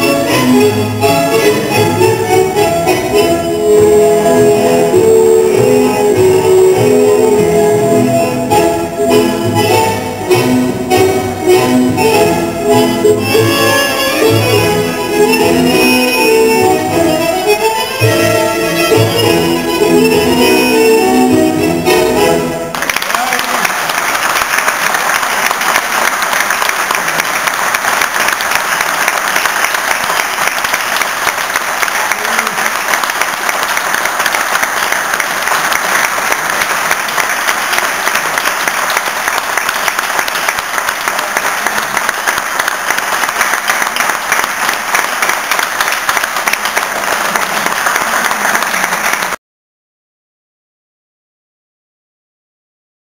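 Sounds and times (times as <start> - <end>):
audience applauding: 22.7 - 49.4.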